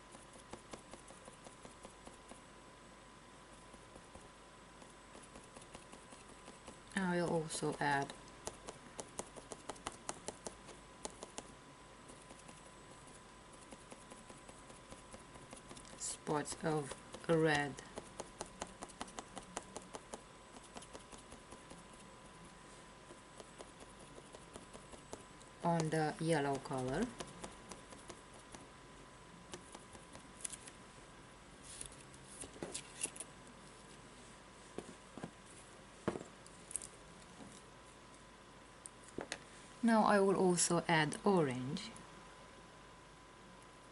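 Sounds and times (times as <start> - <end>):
sponge dauber tapping board: 4.8 - 11.5, 16.8 - 21.8, 23.1 - 25.9, 26.5 - 28.6.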